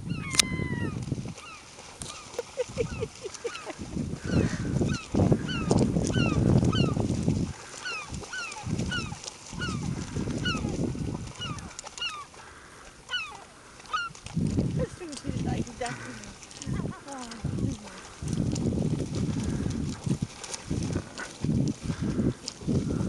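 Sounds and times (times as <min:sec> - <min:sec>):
birds calling: 0:00.0 - 0:18.2.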